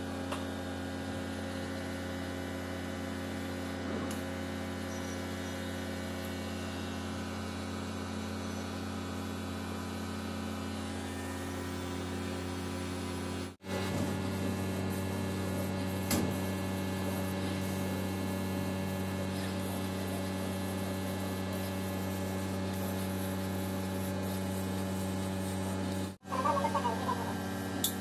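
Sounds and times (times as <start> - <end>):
laser cutter humming: 13.7 - 28.0.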